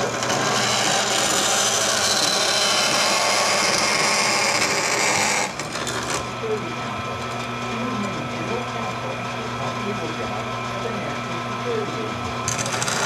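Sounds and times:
bandsaw blade cutting metal: 0.0 - 6.3, 12.5 - 13.0
bandsaw running hum: 0.0 - 13.0.

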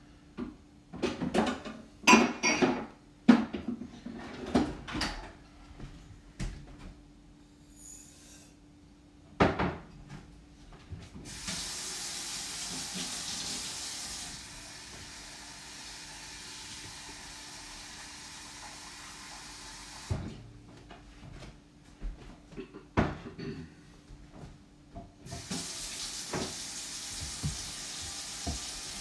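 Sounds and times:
tap water running into sink: 11.3 - 20.2, 25.3 - 29.0.

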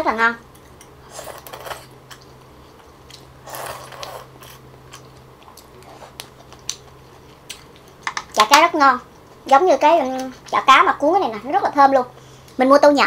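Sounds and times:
person chewing: 0.5 - 8.3
slurp: 3.4 - 4.6.

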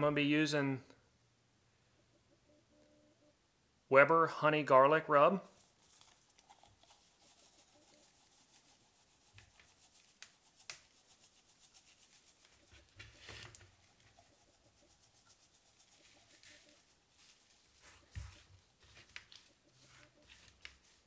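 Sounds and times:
spice rub rustling on meat: 5.5 - 21.0.

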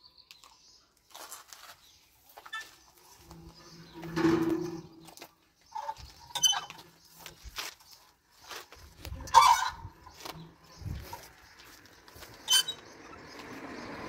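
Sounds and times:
windlass axle squeaking: 5.7 - 6.9, 9.1 - 11.0, 12.3 - 13.3.

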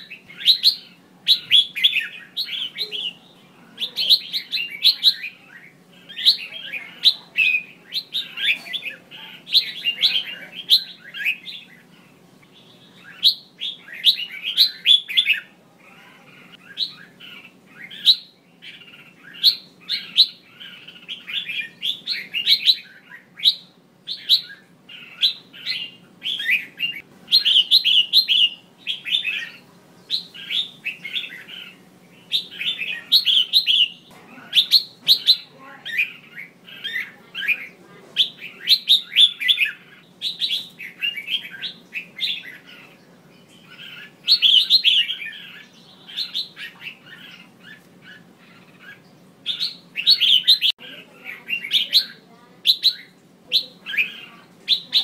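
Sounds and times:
bird chirping and chattering: 0.0 - 55.0.

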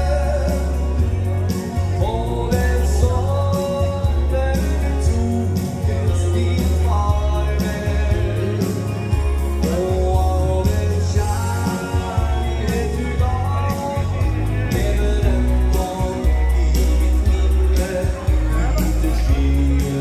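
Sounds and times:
drum beat with cymbals: 0.0 - 20.0
electric guitar: 0.0 - 20.0
heavy bass: 0.0 - 20.0
keyboard: 0.0 - 20.0
man singing: 0.0 - 20.0.

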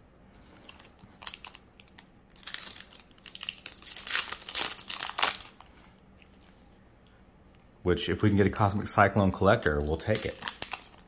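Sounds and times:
foil wrapper crinkling: 0.6 - 6.6, 9.6 - 11.0.

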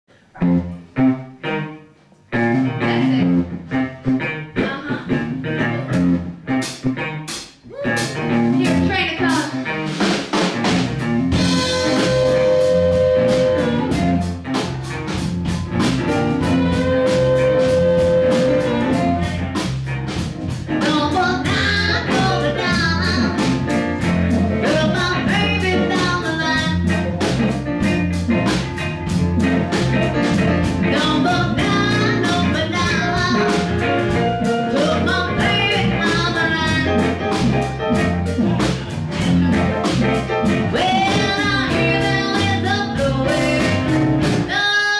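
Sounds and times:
electric blues band playing: 0.1 - 44.9
amplified harmonica: 11.4 - 14.9, 15.5 - 19.7
woman singing: 20.8 - 23.5, 24.6 - 26.8, 30.9 - 33.7, 34.7 - 37.1, 40.7 - 44.9.

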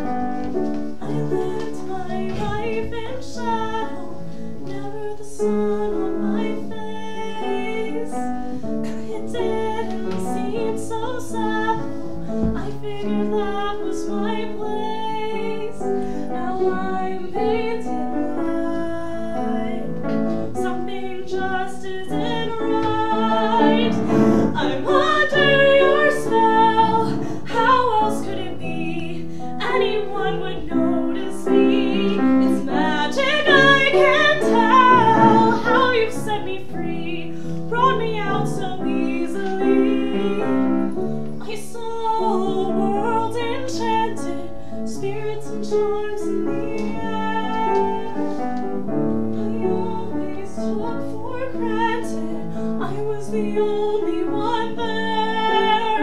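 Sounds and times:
grand piano: 0.0 - 56.0
woman singing a ballad: 0.9 - 48.7, 49.3 - 56.0.

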